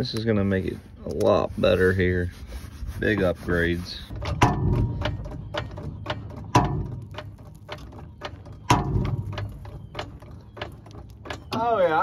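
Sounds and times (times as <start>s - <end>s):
heavy knocks: 4.1s - 10.2s.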